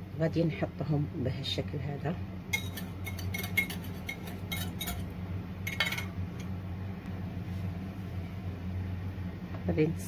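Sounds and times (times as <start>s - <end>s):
steady low hum: 0.0s - 10.0s
whisk clinking against bowl: 2.6s - 5.1s.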